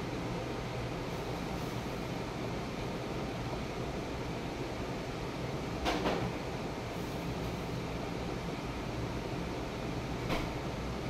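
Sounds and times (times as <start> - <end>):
rain through a window: 0.0 - 11.0.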